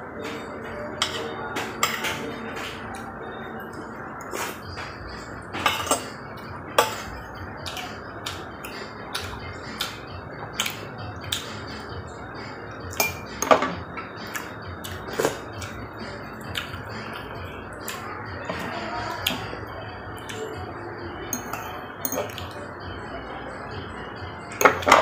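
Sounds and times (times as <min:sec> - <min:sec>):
cutlery clinking on ceramic plate: 0:05.6 - 0:06.2, 0:13.0 - 0:13.8, 0:21.4 - 0:22.5.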